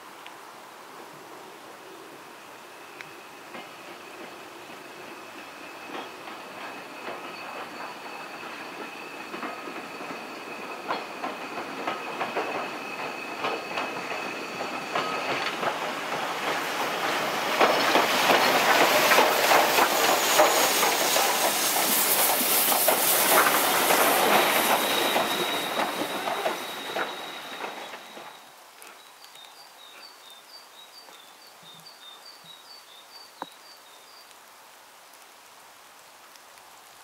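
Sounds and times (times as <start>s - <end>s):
high wheel squeal: 3.2s - 28.5s
train wheels clattering over rails: 3.2s - 28.5s.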